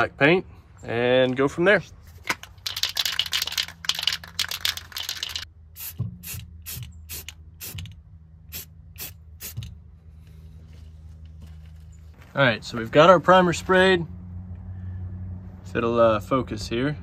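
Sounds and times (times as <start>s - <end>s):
spray can ball clacking: 2.3s - 7.9s.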